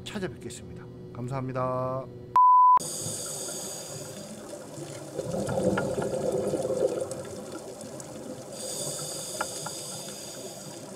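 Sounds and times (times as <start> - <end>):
underwater bubbles gurgling: 2.8 - 10.9.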